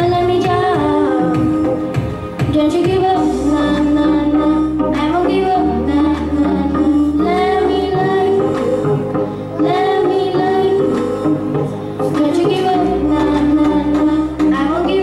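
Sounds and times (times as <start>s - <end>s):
boy singing into a microphone: 0.0s - 15.0s
instrumental backing music: 0.0s - 15.0s.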